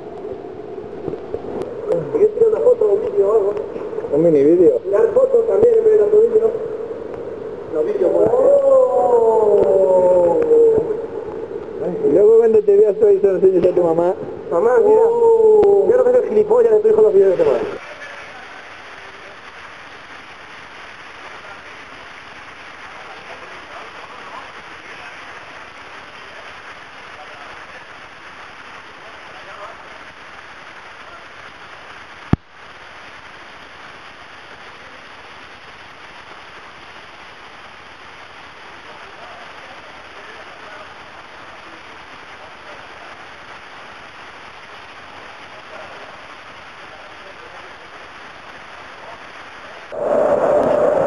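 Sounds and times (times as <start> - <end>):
stream rushing over rocks: 17.2 - 51.0.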